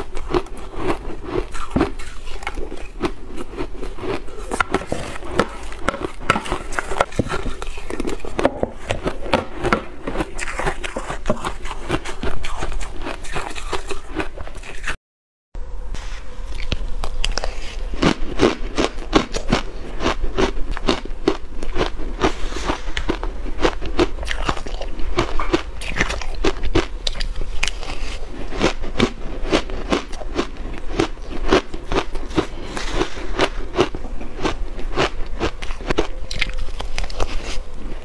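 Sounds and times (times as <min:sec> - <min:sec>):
crunching ice: 0:00.0 - 0:14.9.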